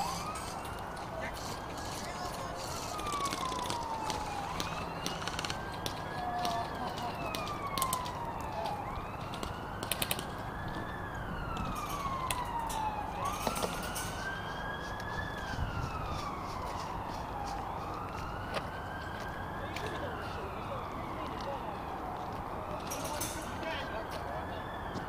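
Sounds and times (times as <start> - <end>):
wailing siren: 0.0 - 25.0
sharp clicks: 9.3 - 10.4.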